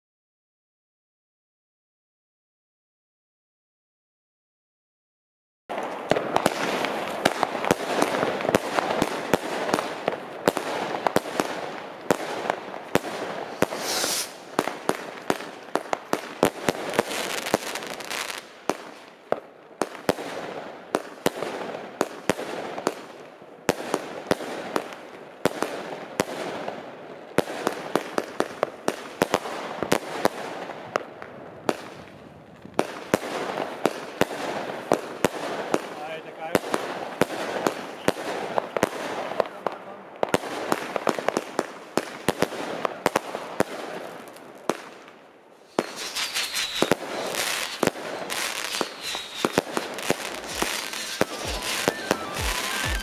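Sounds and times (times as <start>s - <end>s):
fireworks crackling: 5.7s - 53.0s
fireworks battery firing: 12.8s - 15.5s, 45.7s - 53.0s.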